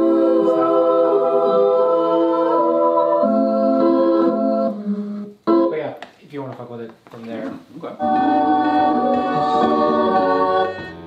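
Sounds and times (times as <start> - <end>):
girls' choir sustained chords: 0.0 - 4.8, 8.0 - 11.0.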